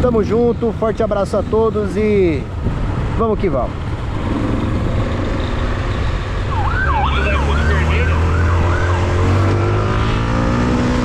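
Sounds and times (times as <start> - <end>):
siren sweeping: 5.2 - 10.0.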